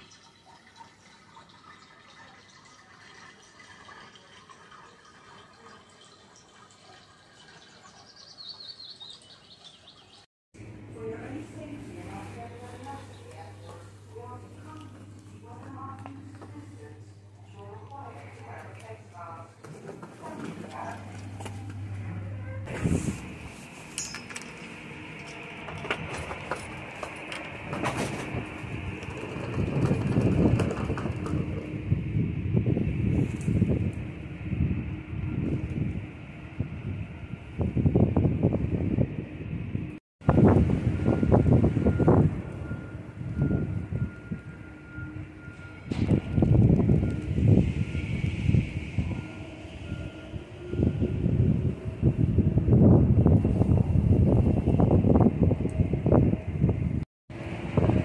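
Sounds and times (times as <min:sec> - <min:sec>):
wind gusts on microphone: 0:22.6 - 0:23.6, 0:25.6 - 0:58.0.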